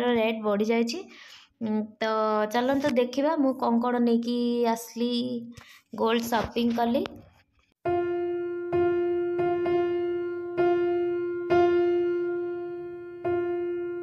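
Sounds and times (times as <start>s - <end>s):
keyboard note ringing: 7.9s - 14.0s.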